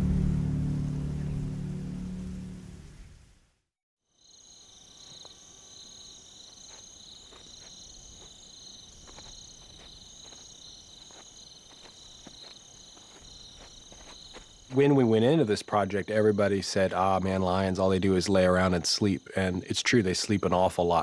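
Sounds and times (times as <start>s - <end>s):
insects trilling: 4.1s - 21.0s.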